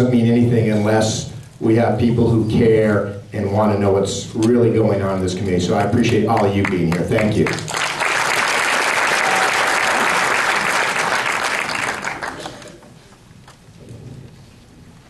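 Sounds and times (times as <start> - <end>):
audience applauding: 6.3 - 13.1.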